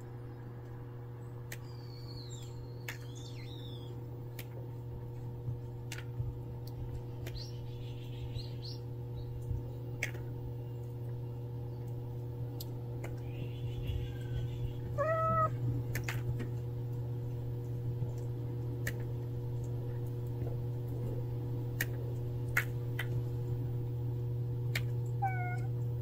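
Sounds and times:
steady low hum: 0.0s - 26.0s
small birds chirping: 0.2s - 4.1s, 6.6s - 9.8s, 10.4s - 15.7s, 24.7s - 25.7s.

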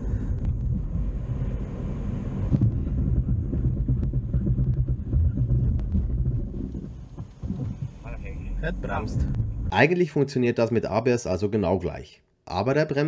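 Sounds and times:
car engine and tyre rumble: 0.0s - 9.7s.

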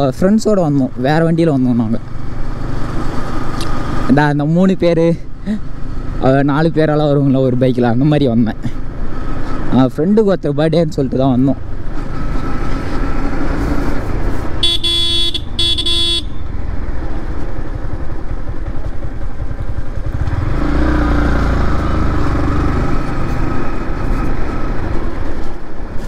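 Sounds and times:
motorcycle engine: 0.0s - 9.8s, 11.3s - 26.0s
road rumble: 0.0s - 26.0s
vehicle horn honking: 14.6s - 16.5s.

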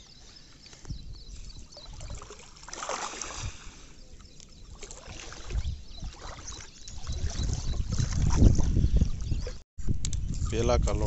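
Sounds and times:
wading through shallow water: 0.0s - 9.6s
loud water splash: 2.6s - 3.6s.

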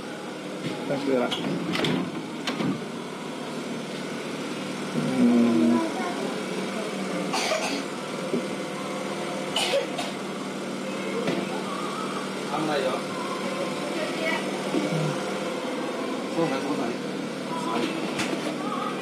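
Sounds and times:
machine hum: 1.8s - 19.0s
faint voices: 10.1s - 19.0s.

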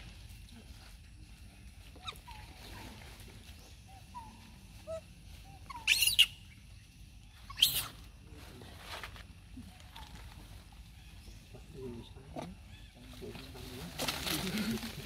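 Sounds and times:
monkey chirps: 1.9s - 2.8s, 3.8s - 6.6s, 7.3s - 8.1s
monkey screams: 5.7s - 6.4s, 7.5s - 8.0s.

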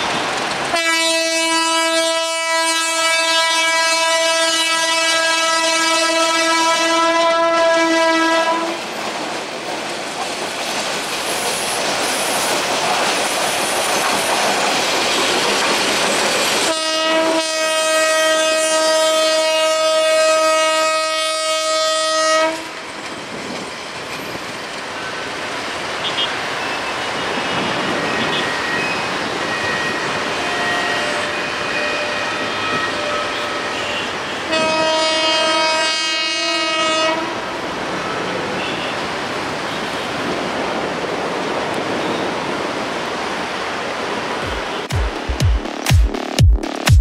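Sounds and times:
train coaches clattering on rails: 0.0s - 1.8s, 7.6s - 17.8s, 22.6s - 45.2s
train horn: 0.7s - 9.0s, 16.6s - 22.8s, 27.2s - 28.6s, 29.5s - 39.1s.

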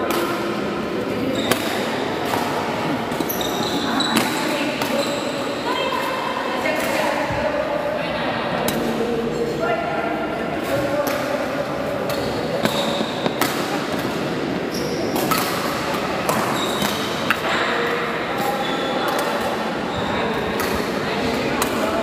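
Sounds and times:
murmur of large hall: 0.0s - 22.0s
shoes squeaking on court: 1.2s - 5.6s, 12.0s - 14.0s, 14.6s - 17.6s
rackets hitting shuttlecock: 1.4s - 3.4s, 10.8s - 14.4s, 15.1s - 18.5s, 20.4s - 21.8s.

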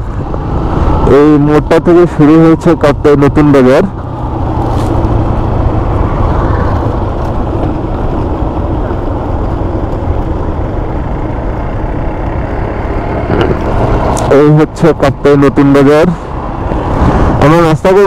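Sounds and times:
motorcycle engine running: 0.0s - 18.0s
wind noise on microphone: 16.6s - 17.4s.

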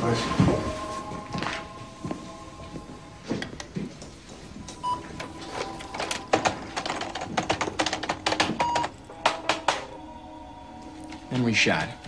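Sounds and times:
rapid keyboard clicks: 5.9s - 9.7s.

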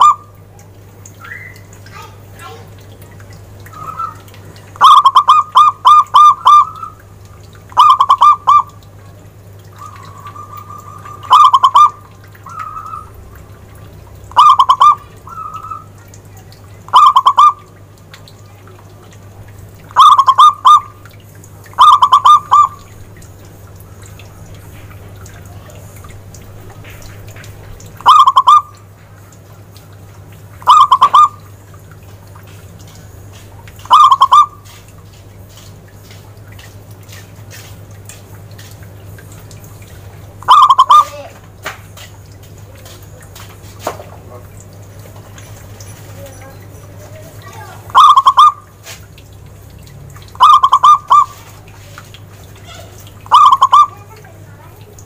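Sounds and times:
dove cooing: 3.7s - 7.0s, 7.8s - 8.8s, 9.7s - 13.2s, 14.3s - 16.0s, 16.9s - 17.7s, 20.0s - 20.9s, 21.8s - 22.9s, 28.0s - 28.8s, 30.6s - 31.5s, 33.9s - 34.6s, 40.4s - 41.4s, 46.3s - 48.7s, 50.4s - 51.6s, 52.6s - 54.1s.

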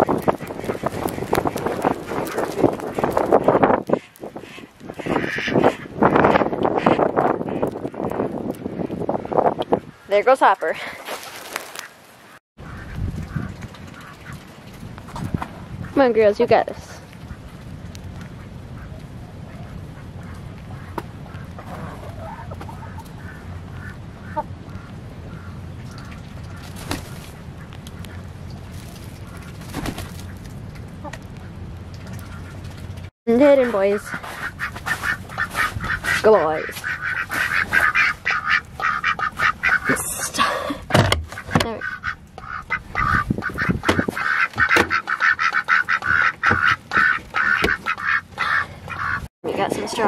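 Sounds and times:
poultry calling: 0.0s - 7.8s, 17.2s - 28.3s, 33.6s - 40.0s, 41.3s - 49.3s
ducks quacking: 0.0s - 10.8s, 11.7s - 14.5s, 15.7s - 28.4s, 31.0s - 49.3s.

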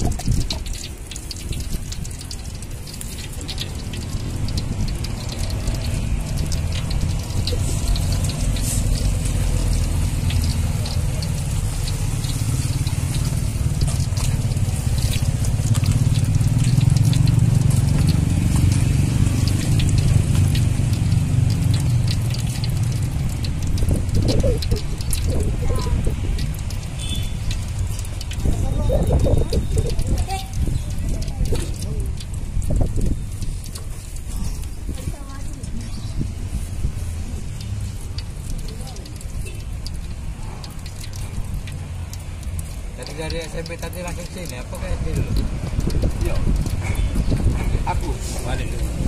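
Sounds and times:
oil crackling and sizzling in a wok: 0.0s - 49.0s.

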